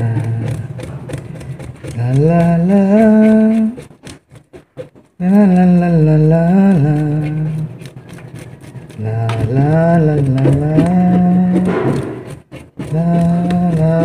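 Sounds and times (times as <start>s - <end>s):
man humming a tune: 0.0s - 1.1s, 1.8s - 3.9s, 5.2s - 7.8s, 9.0s - 14.0s.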